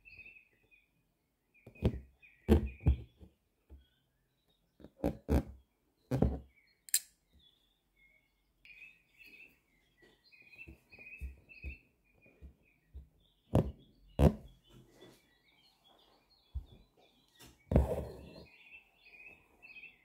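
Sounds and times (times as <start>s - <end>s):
small bird chirping: 0.0s - 20.0s.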